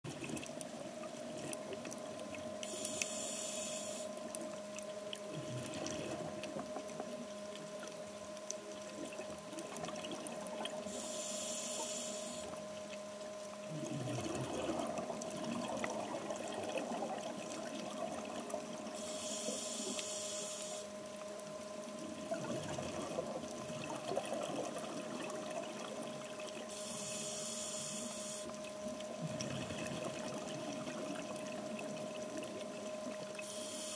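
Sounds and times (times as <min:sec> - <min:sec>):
faint steady hum: 0:00.1 - 0:33.9
regulator inhale hiss: 0:02.6 - 0:04.2, 0:10.9 - 0:12.6, 0:19.0 - 0:20.9, 0:26.7 - 0:28.6, 0:33.4 - 0:33.9
exhaled bubbles gurgling: 0:05.1 - 0:08.0, 0:08.7 - 0:12.6, 0:13.5 - 0:19.7, 0:21.5 - 0:33.8.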